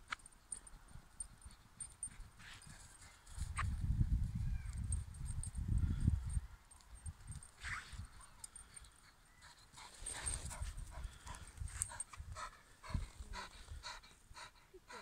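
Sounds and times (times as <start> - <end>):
dog panting: 8.0 - 15.0.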